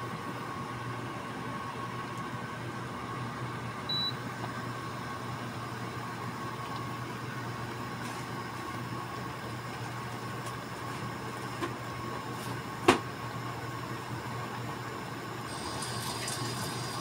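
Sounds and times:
water simmering in pan: 15.4 - 17.0.

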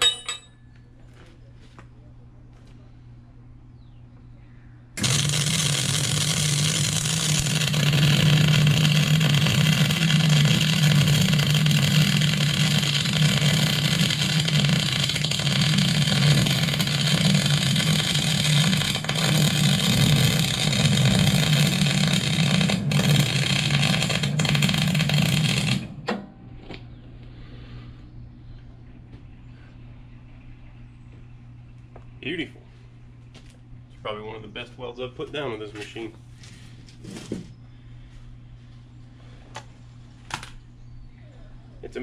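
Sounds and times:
welder arc hissing and buzzing: 5.0 - 26.1.

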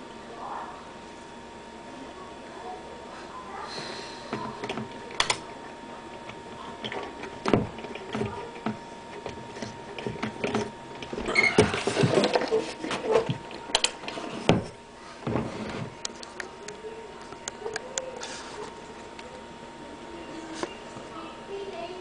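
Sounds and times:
scattered clicks and knocks: 4.3 - 5.5, 6.1 - 18.1.

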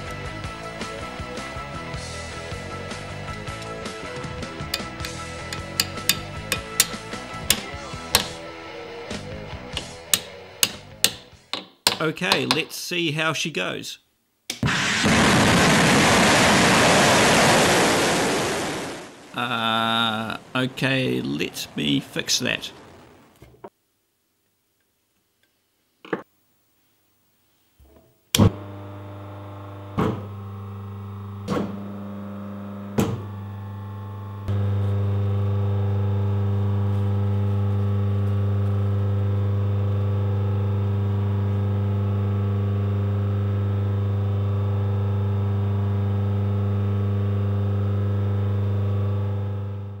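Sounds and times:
electric motor humming: 0.0 - 8.6, 9.2 - 11.2, 28.4 - 50.0.

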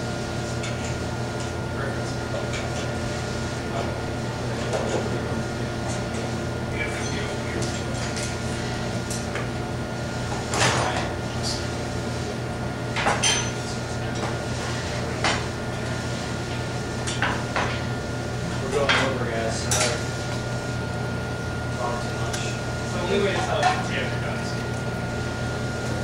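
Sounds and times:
steady low hum: 0.0 - 26.0
dishes and utensils clinking: 13.0 - 13.6.

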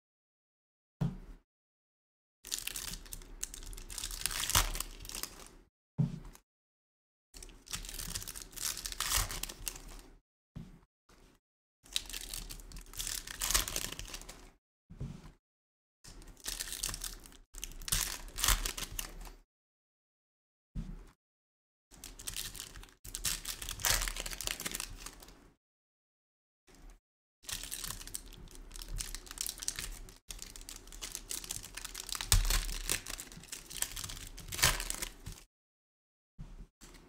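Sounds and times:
foil wrappers tearing and crinkling: 22.1 - 25.2, 27.5 - 35.4.

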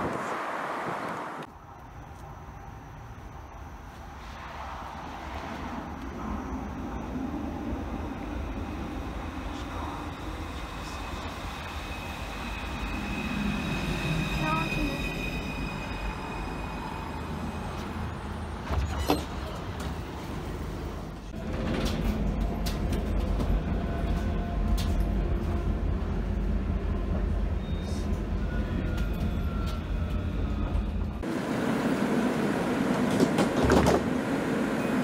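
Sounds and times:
tram running on rails: 0.0 - 35.0
high wheel squeal: 10.1 - 19.6.

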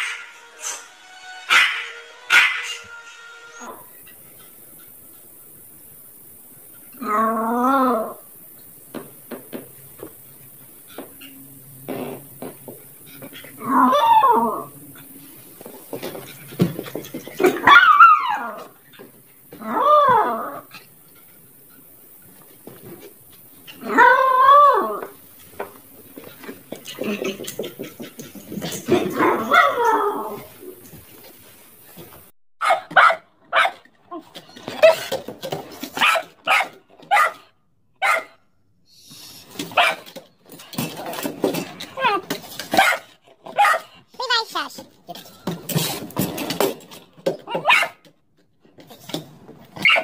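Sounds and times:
small dog barking: 1.5 - 2.8, 17.4 - 18.6, 29.1 - 30.1, 32.6 - 33.8, 36.0 - 38.4, 39.8 - 40.0, 42.7 - 43.9, 47.5 - 48.0.

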